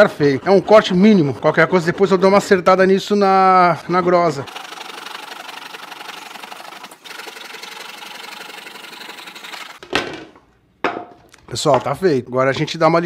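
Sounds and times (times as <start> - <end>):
jigsaw cutting wood: 4.2 - 9.8.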